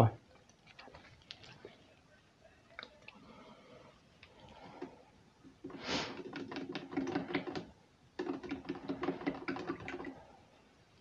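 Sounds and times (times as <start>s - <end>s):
short hiss: 5.8s - 6.2s.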